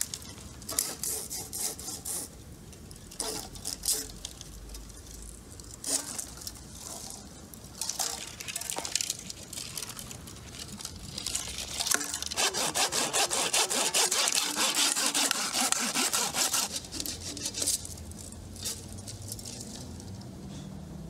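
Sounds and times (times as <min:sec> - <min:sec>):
saw cutting wood: 0:00.7 - 0:02.3, 0:11.9 - 0:17.8.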